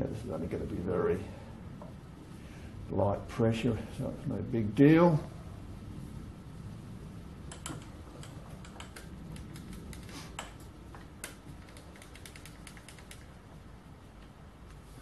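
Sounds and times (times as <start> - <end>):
lathe handwheels clicking: 7.5 - 13.4.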